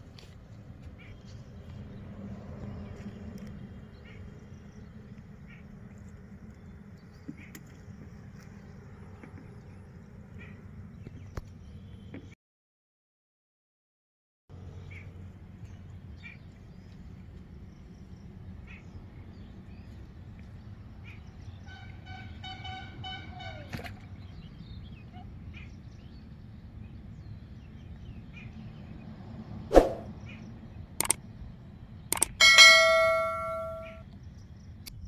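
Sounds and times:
low outdoor rumble: 0:00.0 - 0:12.3, 0:14.5 - 0:34.8
sharp click sound effect: 0:31.0 - 0:31.2, 0:32.1 - 0:34.0.

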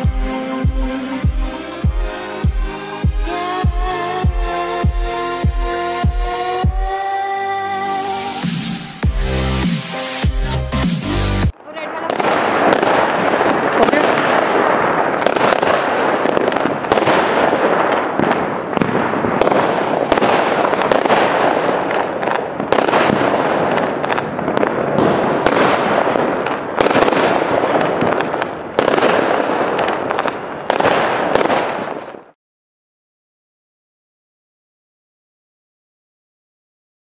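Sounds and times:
firework bangs: 0:07.8 - 0:32.4
firework crackling and rumble: 0:07.8 - 0:32.4.

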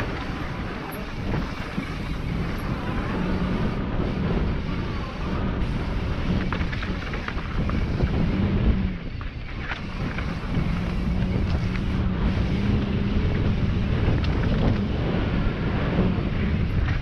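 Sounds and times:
wind rushing over microphone: 0:00.0 - 0:17.0
bike knocks and rattles: 0:05.7 - 0:17.0.

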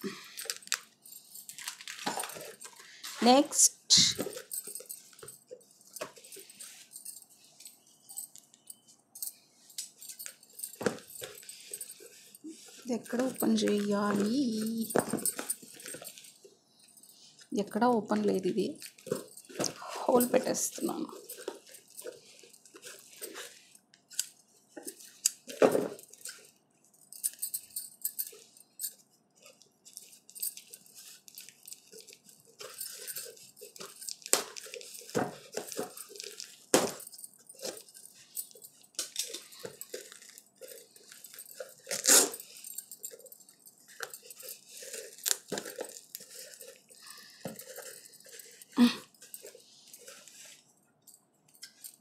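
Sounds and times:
paper and plastic crinkling: 0:00.0 - 0:08.7, 0:09.9 - 0:16.4, 0:17.2 - 0:26.5, 0:29.4 - 0:50.7
wrapping torn open by hand: 0:41.8 - 0:42.4.

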